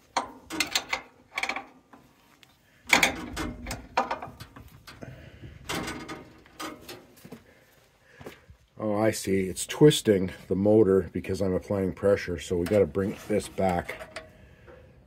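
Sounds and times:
metal wrench clicking and scraping: 0.0 - 1.7.

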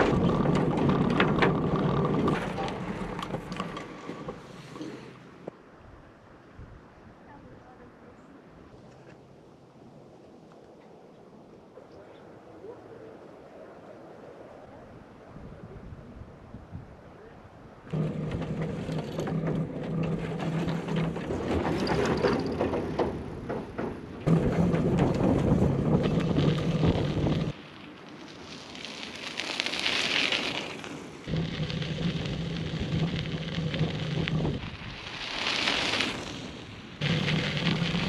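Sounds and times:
bike rattle: 0.0 - 5.2, 17.9 - 27.6, 28.5 - 38.0
bike tyres crunching: 0.0 - 5.6, 17.9 - 38.0
wind noise: 5.4 - 7.2, 9.8 - 27.6, 31.3 - 38.0.

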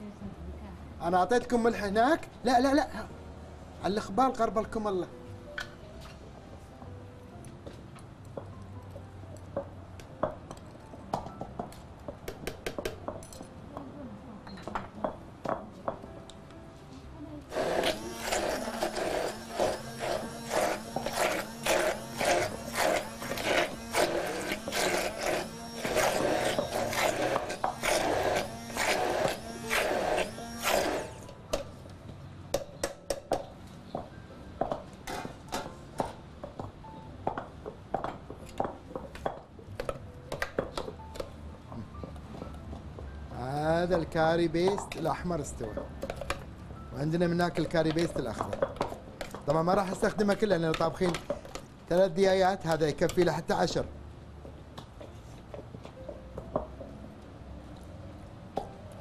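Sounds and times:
stick blender running: 17.5 - 31.3.

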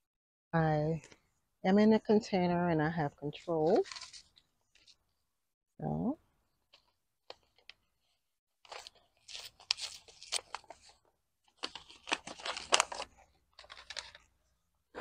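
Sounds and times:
paper packet tearing and crinkling: 3.6 - 4.3, 8.6 - 14.3.

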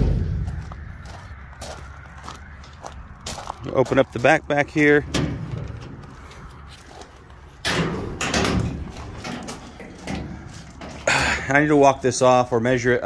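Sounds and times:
metal door clattering open: 5.0 - 6.0, 7.6 - 11.3.

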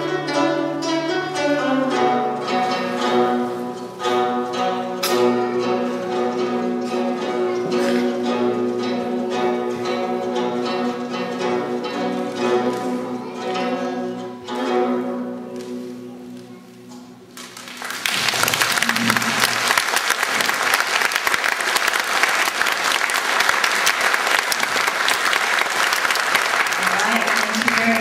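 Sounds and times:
zithers playing plucked chords: 0.0 - 17.7
audience applause: 17.4 - 28.0.

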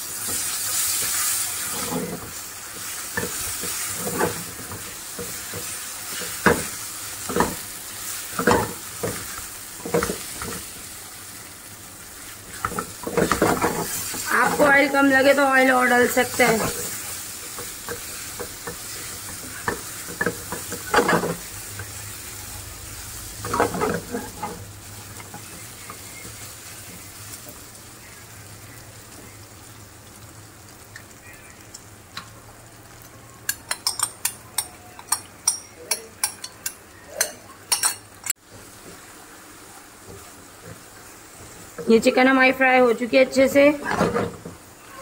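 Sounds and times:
chicken sizzling in oil: 0.0 - 45.0
spatula scraping a pan: 0.2 - 10.8, 12.2 - 22.5, 23.1 - 27.1
spatula tapping a pan: 33.5 - 37.8.

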